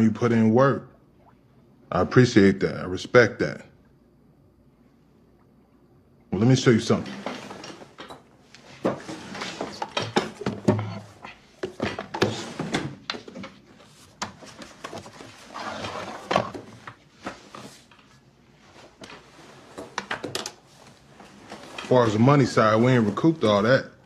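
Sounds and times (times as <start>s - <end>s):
folder pages rustling: 11.8s - 23.8s.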